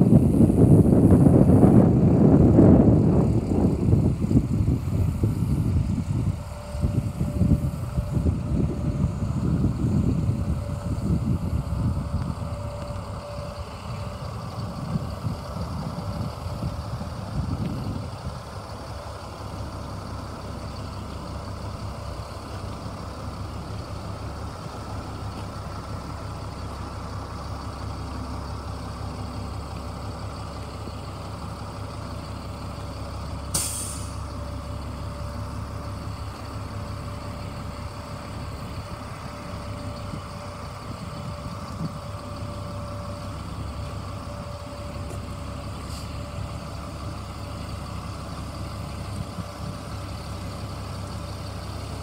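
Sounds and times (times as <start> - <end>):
truck engine running: 0.0 - 52.0
air brake hiss: 33.5 - 34.3, 45.8 - 46.2.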